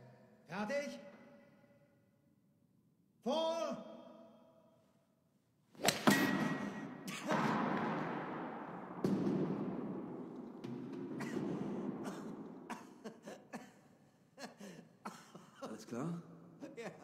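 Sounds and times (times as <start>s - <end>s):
golf ball ricocheting: 5.8s - 10.3s.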